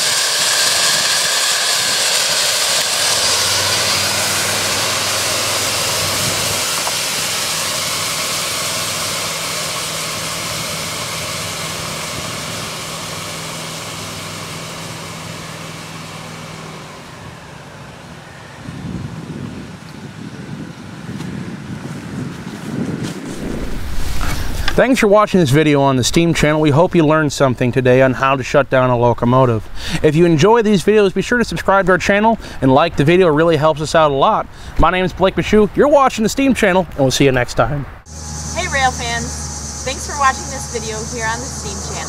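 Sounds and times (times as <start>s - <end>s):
loud steam hiss from valve: 0.0s - 15.4s, 38.1s - 42.0s.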